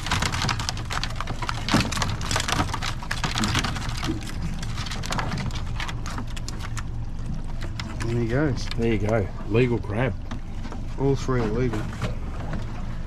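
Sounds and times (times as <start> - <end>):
crabs clicking in plastic basket: 0.0 - 9.2
low steady rumble: 0.0 - 13.0.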